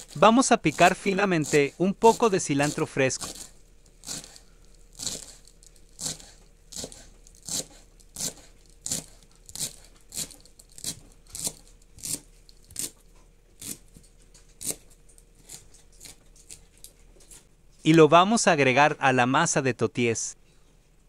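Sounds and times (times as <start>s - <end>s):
knife chopping on wooden board: 0.0s - 4.4s, 5.0s - 5.4s, 6.0s - 13.0s, 14.6s - 14.8s.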